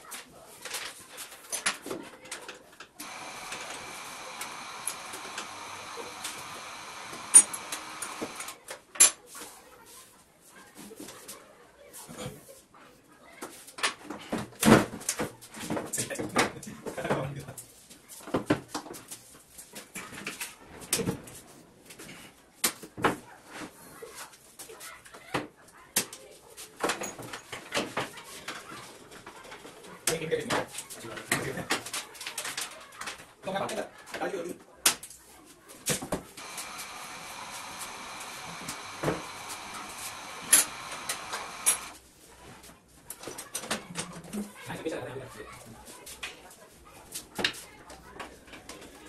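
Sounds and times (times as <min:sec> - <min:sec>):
router whining: 0:03.0 - 0:08.6, 0:36.4 - 0:42.0.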